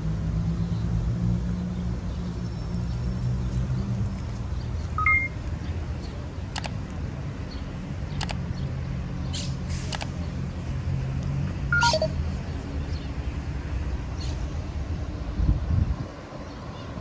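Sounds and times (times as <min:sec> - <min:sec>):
city traffic rumble: 0:00.0 - 0:17.0
two-note electronic beep: 0:05.0 - 0:05.4, 0:11.7 - 0:12.2
sharp clicks: 0:06.5 - 0:07.0, 0:08.2 - 0:08.4, 0:09.9 - 0:10.2.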